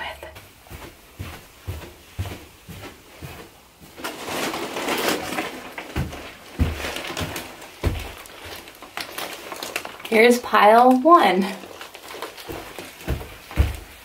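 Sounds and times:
footsteps on carpeted stairs: 0.0 - 4.5, 5.4 - 8.7, 12.2 - 14.0
plastic bags crinkling: 3.9 - 14.0.

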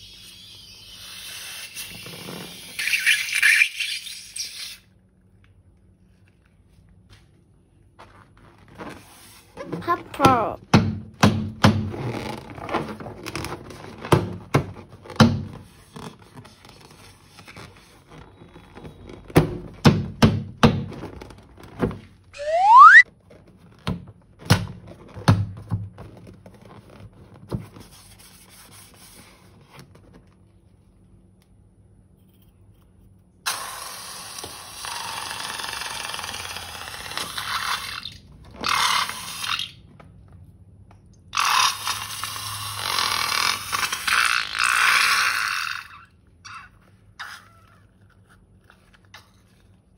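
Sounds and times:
balloon squeal rising in pitch: 0.0 - 4.8, 22.4 - 23.0.

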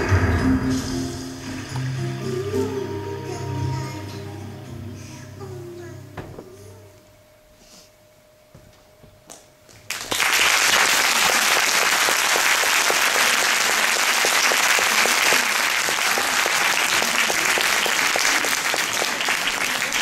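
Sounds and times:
audience applauding: 9.9 - 20.0.

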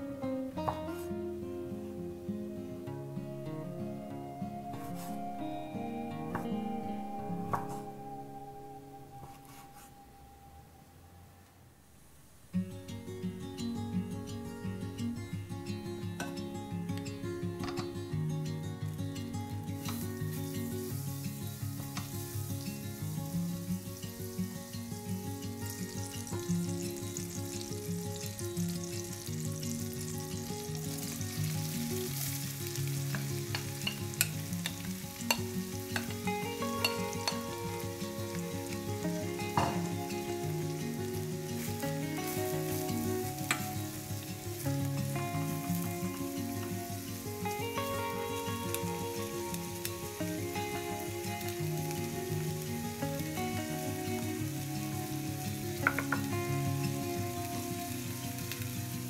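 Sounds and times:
soft background music: 0.0 - 11.4, 12.6 - 59.0
vegetables frying: 18.8 - 59.0
butter sizzling in a frying pan: 19.8 - 59.0
wooden spoon clacking on a pan: 55.8 - 56.2.

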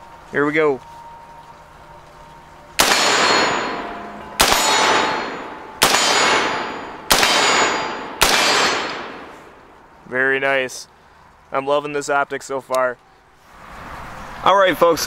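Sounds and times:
rifle shots with echo: 2.8 - 9.8.

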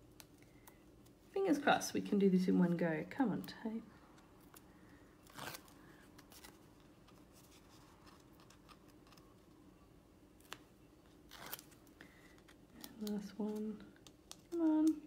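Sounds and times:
small paper clicks: 11.3 - 15.0.

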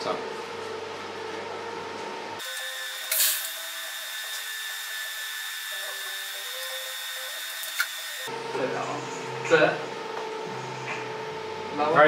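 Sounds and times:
welding arc crackle: 2.4 - 8.3
welding arc hissing: 2.4 - 8.3.

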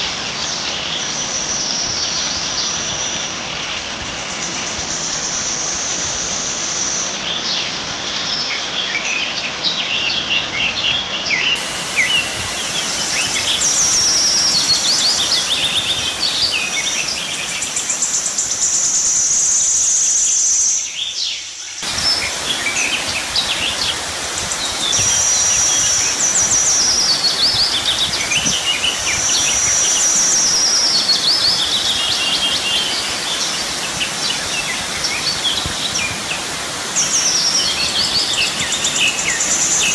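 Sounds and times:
steady outdoor hiss: 0.0 - 39.9
birds singing and chirping: 11.4 - 39.9.

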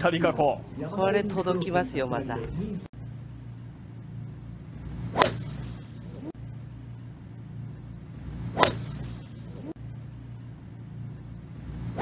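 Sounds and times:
low background hum: 0.0 - 12.0
golf club striking ball: 5.1 - 5.8, 8.5 - 9.3.

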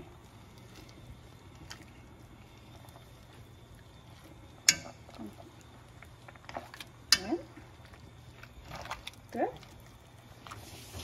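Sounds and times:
wet squelch of potatoes: 0.0 - 11.0.

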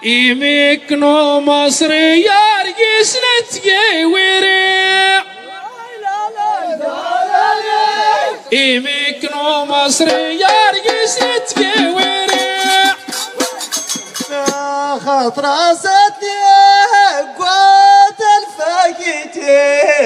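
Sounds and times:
men's chorus singing: 0.0 - 20.0
sharp percussive beats: 9.9 - 15.2.

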